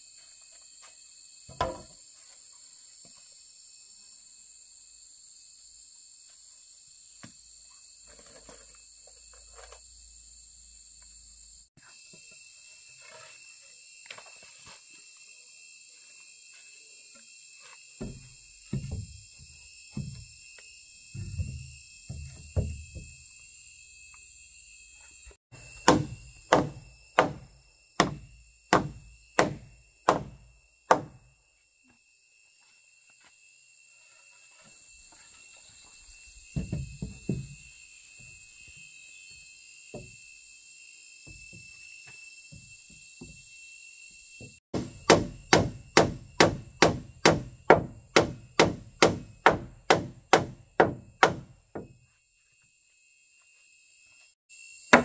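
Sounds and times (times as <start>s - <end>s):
high insect buzz: 0.0s - 55.0s
hand tool striking wood: 1.5s - 2.0s, 25.7s - 31.2s, 44.5s - 52.0s.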